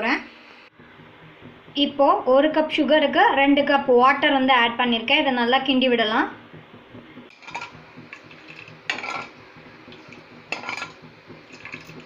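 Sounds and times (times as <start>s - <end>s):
metal ladle scraping a pan: 7.3s - 12.0s.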